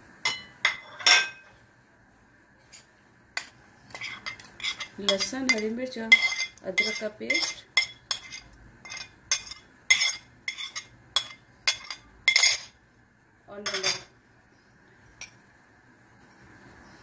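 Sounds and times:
spoon clinking and scraping on plate: 0:00.3 - 0:01.6, 0:02.6 - 0:12.8, 0:13.6 - 0:14.1.

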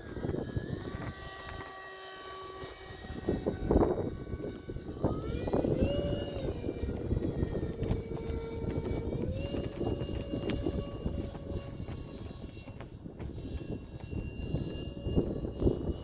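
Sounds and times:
model airplane motor whining: 0:00.0 - 0:16.0
wind rumble on microphone: 0:00.0 - 0:16.0.

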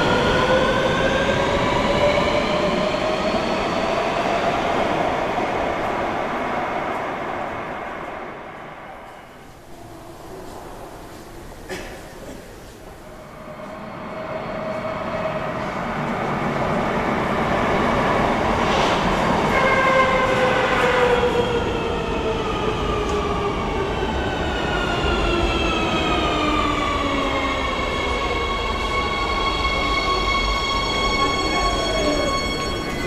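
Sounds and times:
train rushing approach: 0:12.7 - 0:33.0.

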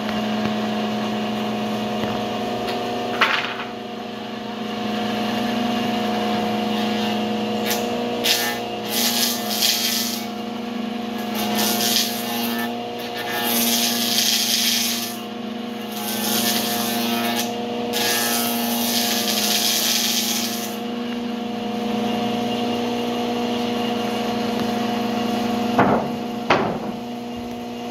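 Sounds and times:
table saw humming: 0:00.0 - 0:27.9
saw cutting wood: 0:04.6 - 0:21.3
wood knocks: 0:25.8 - 0:27.0.

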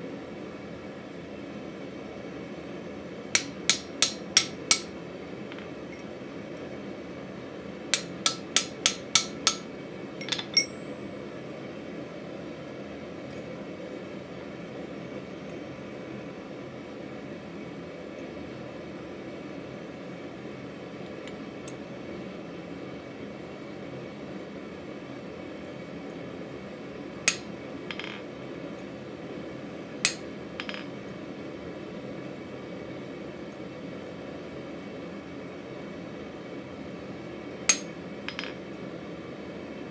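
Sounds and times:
chisel clinking on anvil: 0:03.4 - 0:04.9, 0:08.0 - 0:11.0, 0:27.3 - 0:28.2, 0:30.1 - 0:30.9, 0:37.7 - 0:38.6
hammer striking chisel: 0:03.4 - 0:04.9, 0:08.0 - 0:10.8
faint metal clinks: 0:10.2 - 0:11.0.

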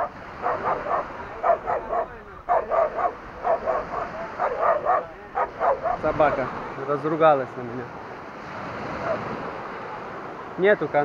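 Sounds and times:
dog barking: 0:00.0 - 0:06.4, 0:09.0 - 0:09.3.

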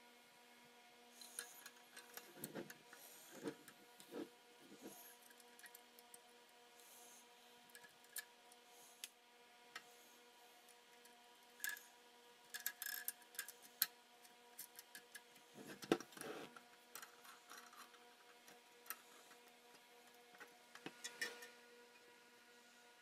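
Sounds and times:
faint steady hum: 0:00.0 - 0:23.0
small parts and tools clicking: 0:01.2 - 0:03.8, 0:05.2 - 0:06.2, 0:07.7 - 0:09.9, 0:10.7 - 0:11.9, 0:12.5 - 0:21.6.

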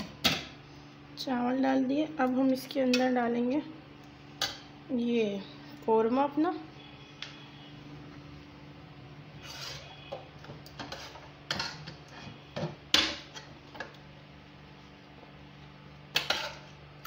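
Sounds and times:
spoon scraping metal pot: 0:09.4 - 0:12.6.

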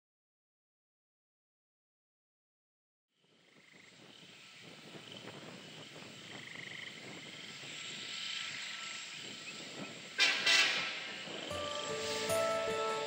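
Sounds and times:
diesel train engines: 0:07.6 - 0:13.0.

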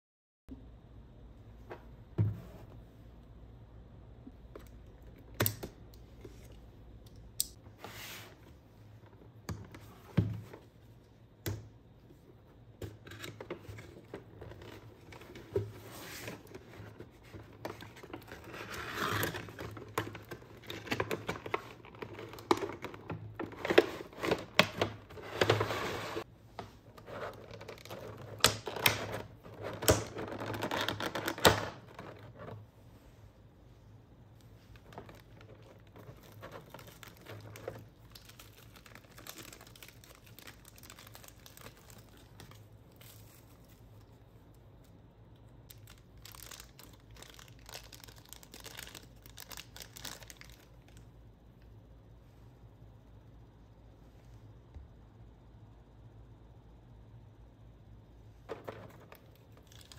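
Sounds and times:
plastic packaging crinkling: 0:34.7 - 0:44.2, 0:45.7 - 0:51.0, 0:58.5 - 0:59.9.

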